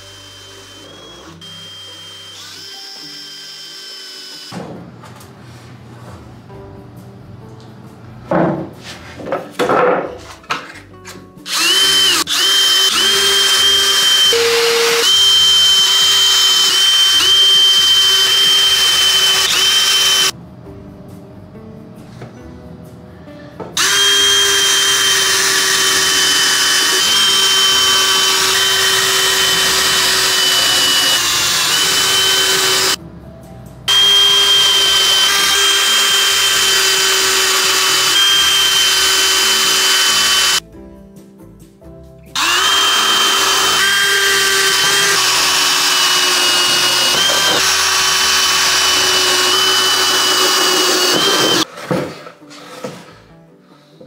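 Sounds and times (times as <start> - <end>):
cordless drill drilling into wood: 0.0 - 4.5, 11.5 - 20.3, 23.8 - 33.0, 33.9 - 40.6, 42.4 - 51.7.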